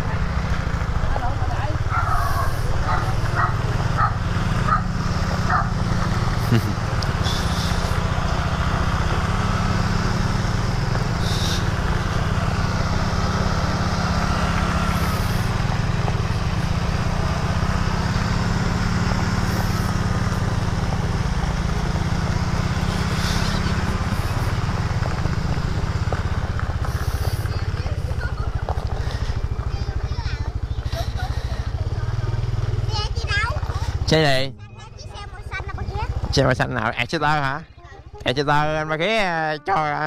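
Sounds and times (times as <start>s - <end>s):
scooter engine running: 0.0s - 40.0s.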